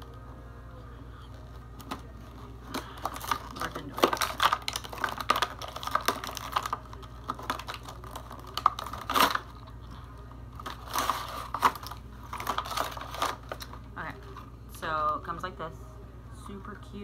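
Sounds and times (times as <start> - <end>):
packaging rustling and crinkling: 1.3 - 9.8, 10.4 - 14.5
cardboard box tearing: 7.3 - 9.4.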